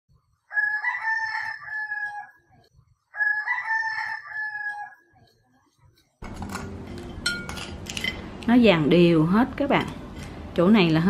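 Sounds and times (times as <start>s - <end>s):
rooster crowing: 0.5s - 5.1s.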